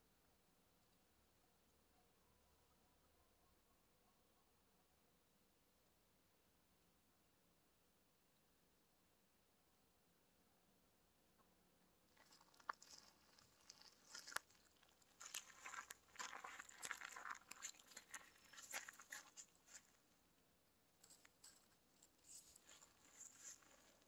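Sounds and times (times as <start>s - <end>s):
cat paws scrabbling on gravel and leaves: 12.2s - 20.0s, 21.0s - 24.0s.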